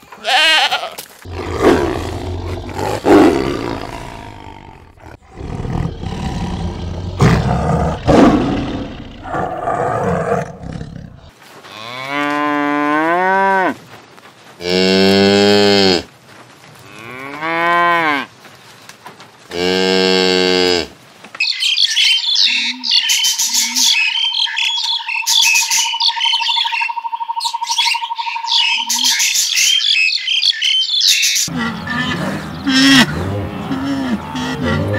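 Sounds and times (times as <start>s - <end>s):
tiger growling and roaring: 1.2s - 11.3s, 31.5s - 34.9s
cow mooing: 1.3s - 7.6s, 31.5s - 34.9s.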